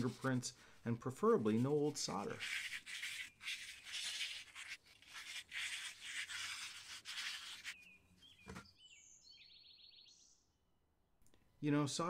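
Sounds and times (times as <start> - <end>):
faint bird chirps: 7.7 - 10.6.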